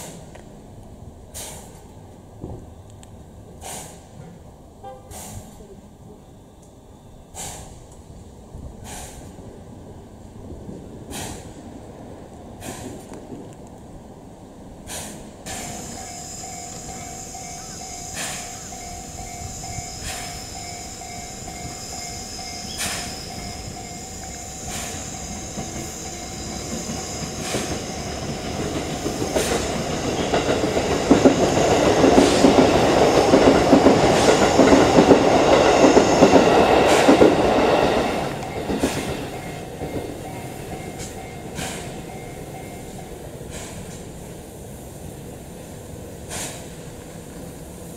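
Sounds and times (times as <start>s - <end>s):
loud rush of venting steam: 1.3s - 1.8s, 3.6s - 4.2s, 8.7s - 13.4s, 14.7s - 47.9s
steam hissing: 1.3s - 1.8s, 3.6s - 4.2s, 5.0s - 5.6s, 7.3s - 7.9s, 8.7s - 9.4s, 11.0s - 11.7s, 12.5s - 13.1s, 14.8s - 47.9s.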